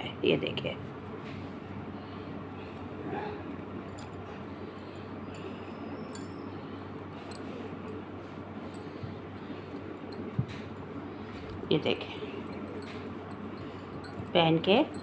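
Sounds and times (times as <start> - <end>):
bangles clinking: 3.8 - 8.0, 8.6 - 15.0.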